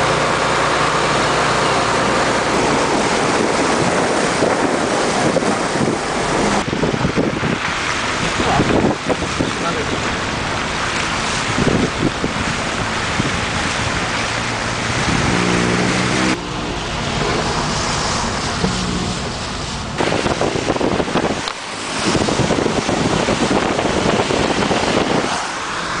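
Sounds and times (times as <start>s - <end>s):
car tyres splashing through water: 0.0s - 26.0s
wind noise on microphone: 0.0s - 26.0s
low pitched drone: 13.8s - 20.1s.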